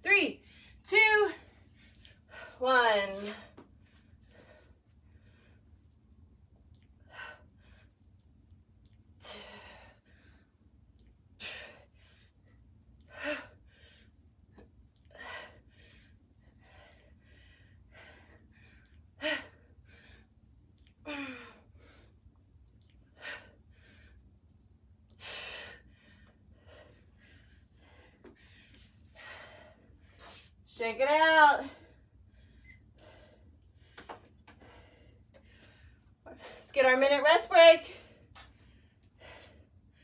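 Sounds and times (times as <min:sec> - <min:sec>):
person breathing heavily: 0:31.8 - 0:36.7, 0:37.9 - 0:40.0.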